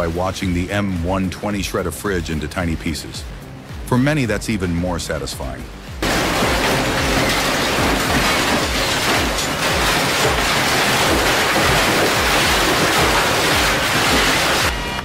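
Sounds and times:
industrial shredder grinding metal: 0:06.0 - 0:14.7.

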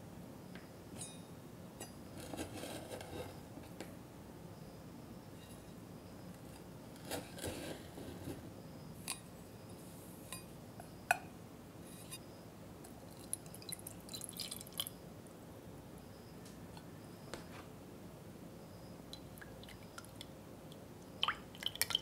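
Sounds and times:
milk pouring into pot: 0:13.1 - 0:15.0, 0:21.2 - 0:22.0.

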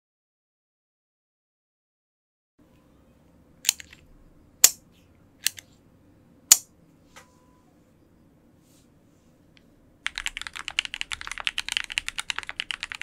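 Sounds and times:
faint room hiss: 0:02.6 - 0:13.0.

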